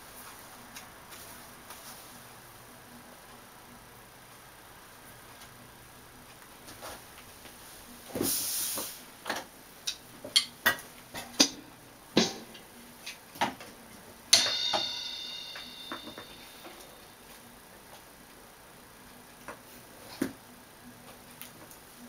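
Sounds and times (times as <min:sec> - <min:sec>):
cymbal ringing: 0:14.3 - 0:17.2
electronic drum pad hits: 0:14.3 - 0:17.2.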